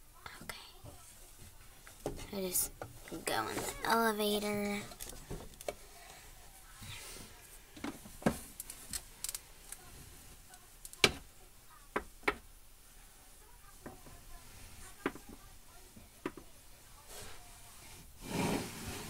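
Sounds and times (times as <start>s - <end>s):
plastic toys clicking and tapping: 10.8s - 11.2s.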